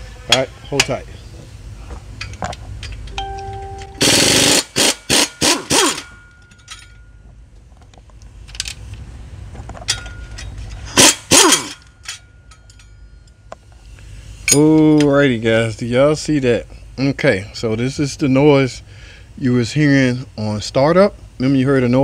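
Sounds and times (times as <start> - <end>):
pneumatic wrench bursts: 4.0 - 6.2, 10.8 - 11.9.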